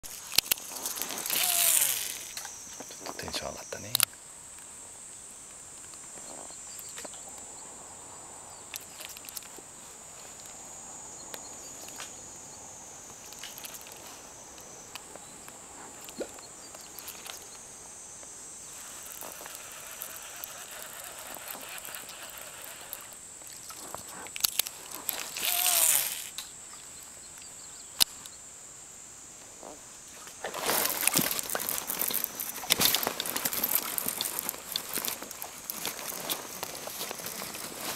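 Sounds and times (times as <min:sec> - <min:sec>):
small clicks: 0:00.0 - 0:04.7, 0:18.2 - 0:26.5
insects droning: 0:00.0 - 0:37.9.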